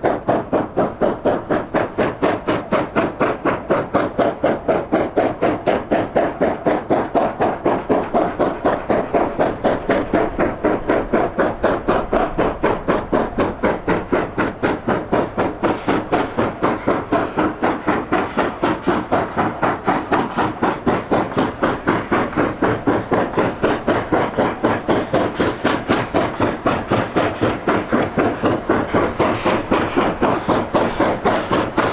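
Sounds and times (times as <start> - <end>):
steam locomotive chuffing: 0.0 - 31.9.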